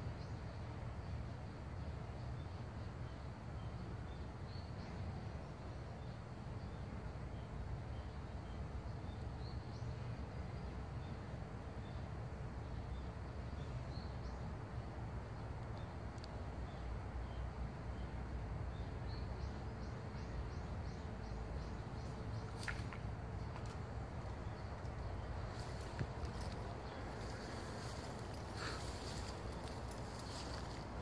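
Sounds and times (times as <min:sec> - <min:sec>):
steady low rumble: 0:19.4 - 0:31.0.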